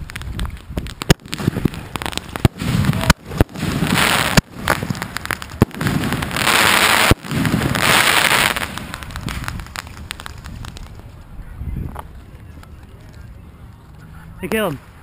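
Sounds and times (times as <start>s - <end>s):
crackling hissing firework bursts: 0.0s - 11.3s
firework bangs: 0.0s - 12.2s.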